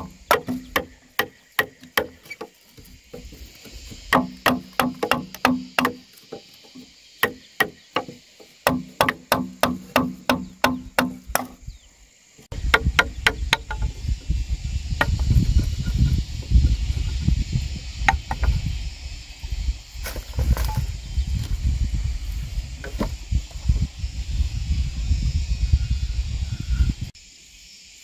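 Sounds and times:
tool striking wooden pole: 0:00.0 - 0:11.6, 0:12.5 - 0:14.0.

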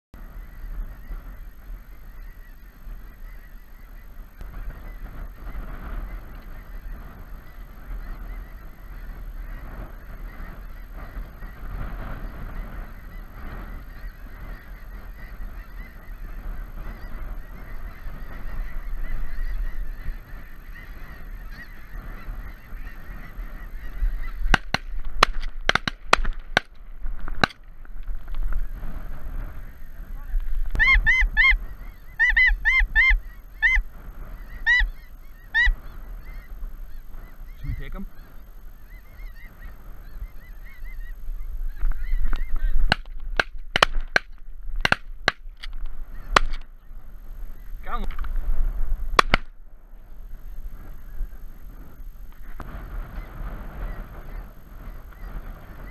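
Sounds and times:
geese honking: 0:00.2 - 0:48.2, 0:49.1 - 0:55.9
sharp clicks: 0:49.2 - 0:49.5.

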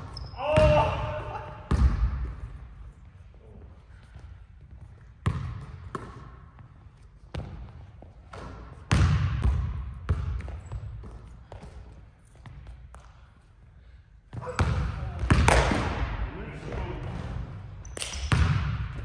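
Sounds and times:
basketball hitting rim: 0:01.7 - 0:02.3, 0:05.2 - 0:06.2, 0:08.3 - 0:10.6, 0:18.0 - 0:19.0
basketball bouncing on wooden floor: 0:01.7 - 0:02.4, 0:04.8 - 0:06.7, 0:07.3 - 0:13.1, 0:18.0 - 0:19.0.

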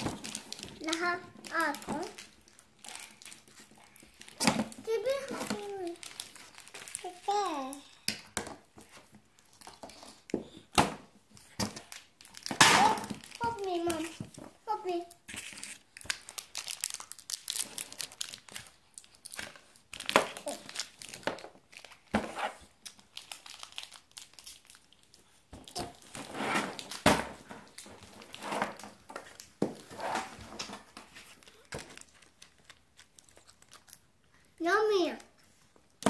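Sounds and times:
candy wrapper crinkling and tearing: 0:00.0 - 0:08.1, 0:11.8 - 0:27.0, 0:31.1 - 0:34.6.

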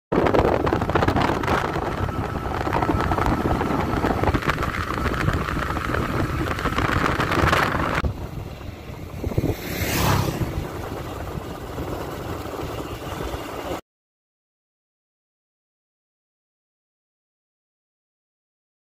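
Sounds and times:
motorcycle road and engine noise: 0:00.1 - 0:13.8
wind rushing over microphone: 0:00.1 - 0:13.8.

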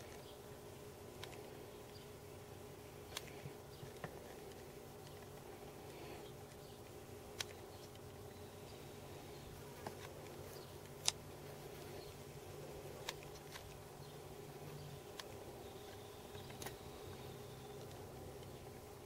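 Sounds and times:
electrical buzz and hum: 0:00.0 - 0:19.0
sharp clicks: 0:15.1 - 0:18.6.

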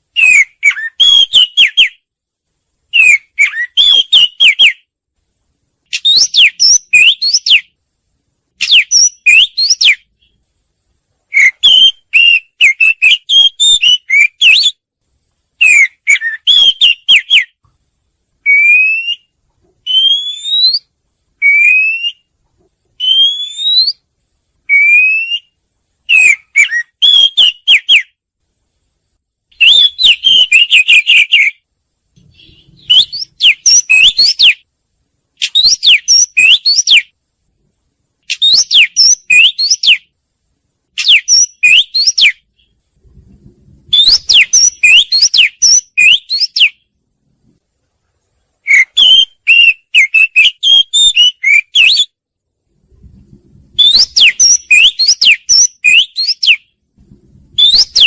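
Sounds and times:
bird whistling song: 0:00.1 - 0:02.0, 0:02.9 - 0:04.9, 0:05.9 - 0:07.8, 0:08.6 - 0:10.4, 0:11.3 - 0:14.8, 0:15.6 - 0:17.6, 0:18.4 - 0:22.3, 0:23.0 - 0:28.2, 0:29.5 - 0:31.6, 0:32.2 - 0:34.6, 0:35.4 - 0:37.2, 0:38.2 - 0:40.1, 0:41.0 - 0:42.8, 0:43.9 - 0:46.9, 0:48.6 - 0:52.2, 0:53.8 - 0:56.7, 0:57.5 - 0:58.0.

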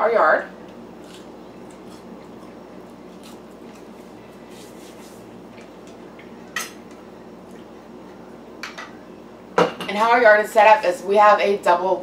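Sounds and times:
low room hum: 0:00.0 - 0:12.0
quiet chewing: 0:00.6 - 0:07.8.

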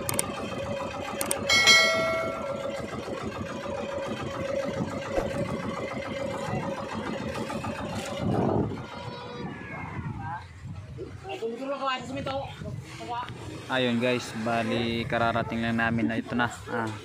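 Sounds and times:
boat engine running: 0:00.0 - 0:09.6
short ringing tone: 0:01.5 - 0:02.9.

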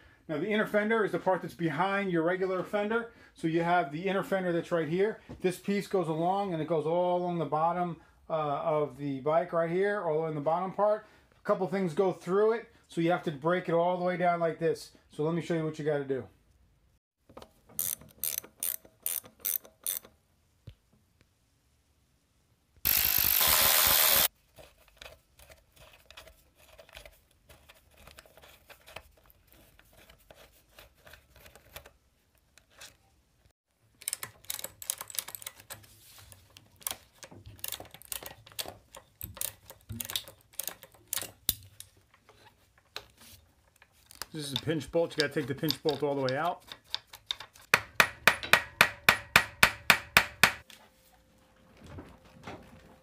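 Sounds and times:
ratchet wrench clicking: 0:17.8 - 0:20.1, 0:22.9 - 0:24.3.

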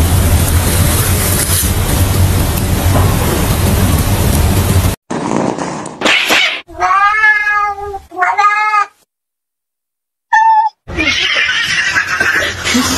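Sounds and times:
cat meowing: 0:06.1 - 0:09.0, 0:10.3 - 0:12.0.

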